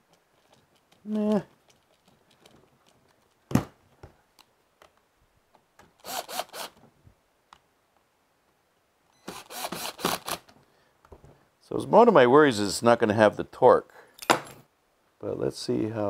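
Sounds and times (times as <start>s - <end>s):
cordless screwdriver whirring: 6.0s - 6.8s, 9.3s - 10.5s.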